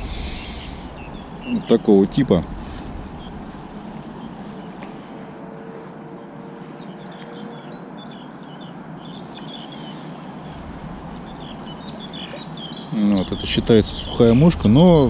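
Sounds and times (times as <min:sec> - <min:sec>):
river current rushing: 0:00.0 - 0:04.5
small birds chirping: 0:00.0 - 0:15.0.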